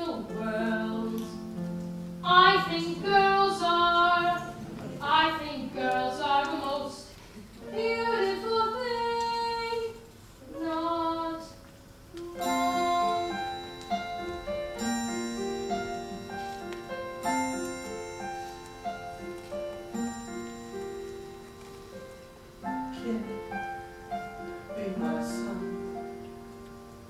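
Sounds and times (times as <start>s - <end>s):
person singing: 2.2s - 14.3s, 22.8s - 23.8s, 24.5s - 26.3s
instrumental accompaniment: 10.4s - 27.0s.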